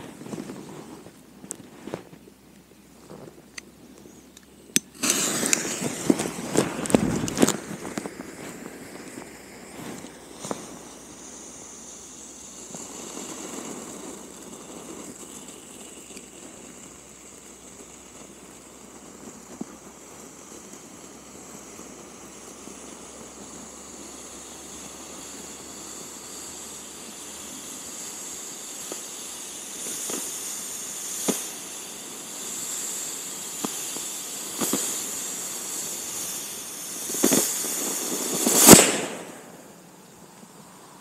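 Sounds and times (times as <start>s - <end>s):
sharp pops: 0.0s - 11.9s, 25.1s - 40.2s
smoke charge hissing: 0.0s - 41.0s.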